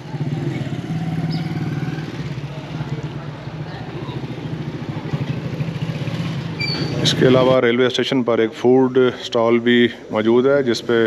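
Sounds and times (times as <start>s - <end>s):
small engine idling: 0.0s - 7.5s
street noise: 0.0s - 11.0s.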